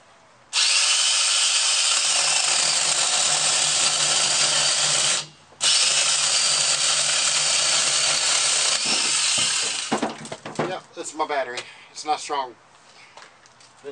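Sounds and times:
chainsaw cutting into log: 0.5s - 10.2s.

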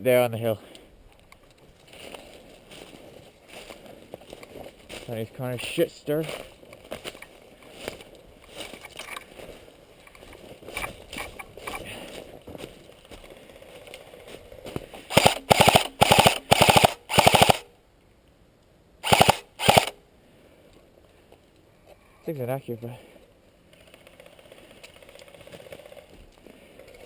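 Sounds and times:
rustling in dry leaves: 1.6s - 15.7s
airsoft gun firing bursts: 15.1s - 17.7s, 19.0s - 20.0s.

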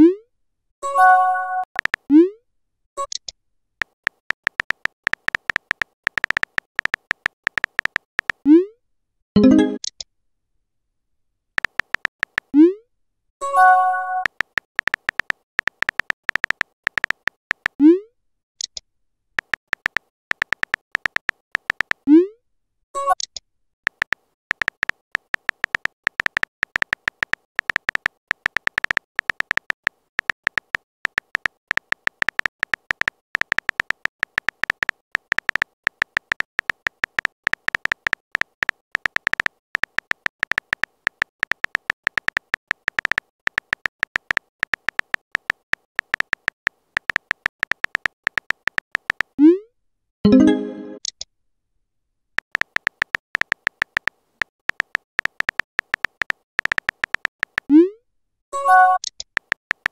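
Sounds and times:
keyboard tap clicks: 1.8s - 2.1s, 3.0s - 8.4s, 11.6s - 12.5s, 14.2s - 17.8s, 19.4s - 22.0s, 23.9s - 49.4s, 52.4s - 57.7s, 59.1s - 59.9s.

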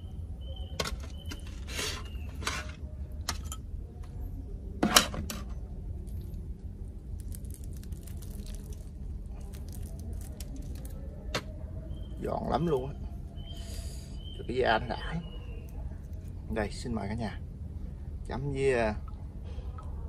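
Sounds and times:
crispy crust crackling: 5.6s - 14.0s.

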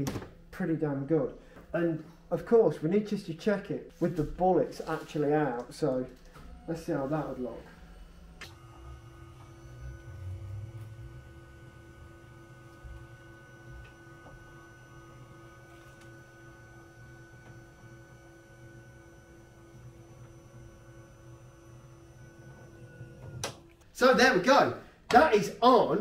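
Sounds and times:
hum of held tones: 6.1s - 23.4s.

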